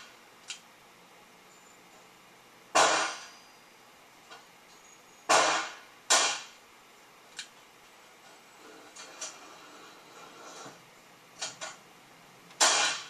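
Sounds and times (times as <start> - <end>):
revolver shots with echo: 2.8 - 3.3, 5.3 - 6.6, 12.6 - 13.0.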